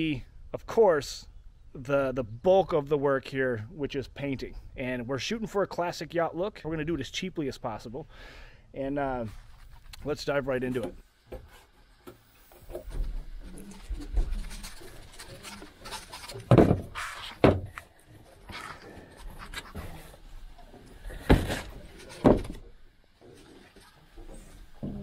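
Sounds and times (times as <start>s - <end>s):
knocks clatter and scraping: 10.7s - 25.0s.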